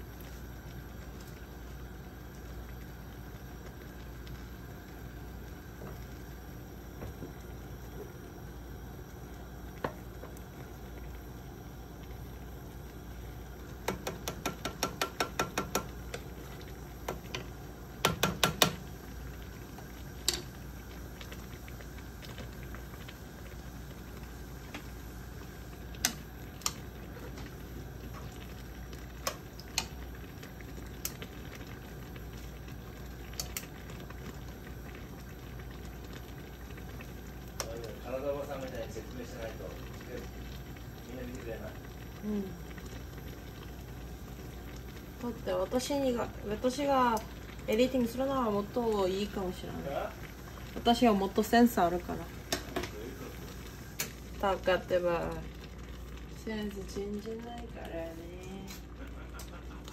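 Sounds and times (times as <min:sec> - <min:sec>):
pots simmering hiss: 0:00.0 - 0:59.9
wooden spoon clicking on saucepan: 0:13.8 - 0:15.9, 0:18.0 - 0:18.8.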